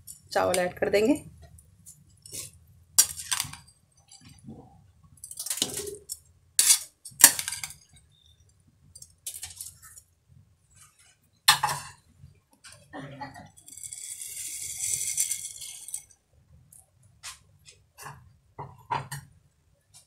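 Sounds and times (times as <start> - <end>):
metal utensils clinking on pot: 5.2 - 7.8.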